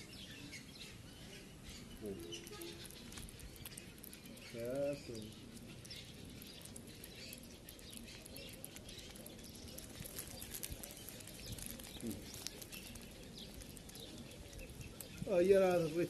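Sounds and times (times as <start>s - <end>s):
kitten lapping milk: 2.5s - 15.3s.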